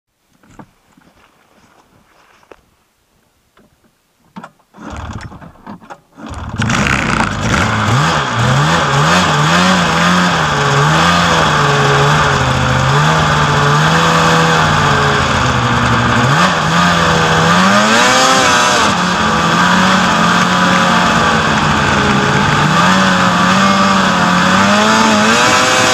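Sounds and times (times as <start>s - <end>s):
snowmobile engine revving: 6.2s - 25.9s.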